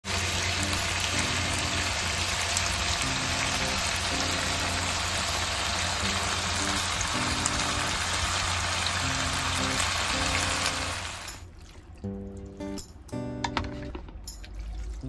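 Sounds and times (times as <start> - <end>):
food sizzling in a pan: 0.0 - 11.4
soft background music: 0.2 - 2.2, 2.9 - 15.0.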